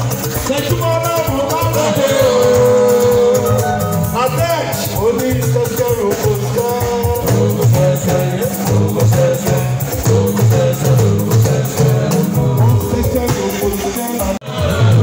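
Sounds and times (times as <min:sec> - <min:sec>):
man singing into a microphone: 0:00.0 - 0:15.0
percussion: 0:00.0 - 0:15.0
low bass figure: 0:02.0 - 0:05.4.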